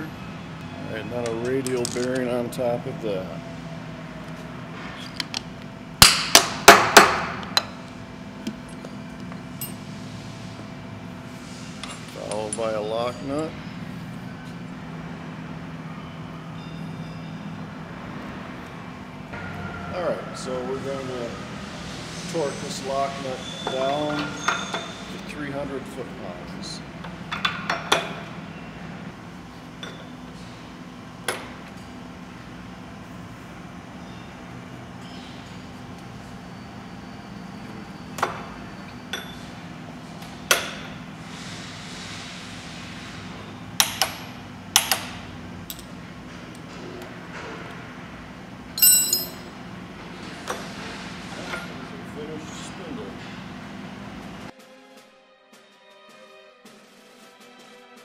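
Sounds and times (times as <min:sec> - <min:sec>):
sharp metallic clink: 0:48.8 - 0:49.5.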